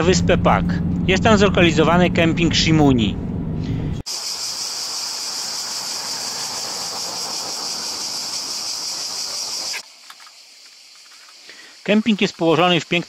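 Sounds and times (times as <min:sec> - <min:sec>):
cicadas buzzing: 0:04.0 - 0:13.0.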